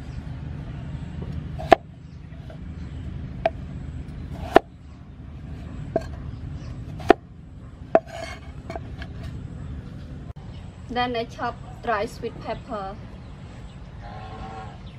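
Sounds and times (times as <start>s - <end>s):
steady low rumble: 0.0s - 14.1s
knife chopping on wooden block: 1.6s - 1.8s, 4.4s - 4.7s, 6.0s - 6.2s, 6.9s - 7.2s, 8.0s - 9.2s.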